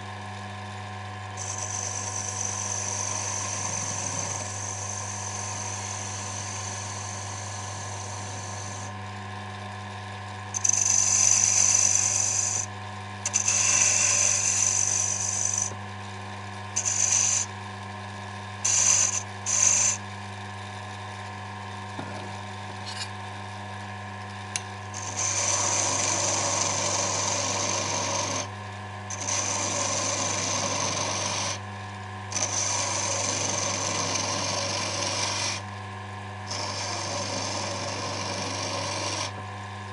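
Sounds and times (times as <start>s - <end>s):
wood lathe motor hum: 0.0s - 23.1s, 24.0s - 39.9s
turning tool scraping wood: 1.4s - 8.9s, 10.6s - 12.7s, 13.3s - 15.8s, 16.8s - 17.5s, 18.6s - 20.0s, 25.0s - 28.5s, 29.1s - 31.6s, 32.3s - 35.6s, 36.5s - 39.3s.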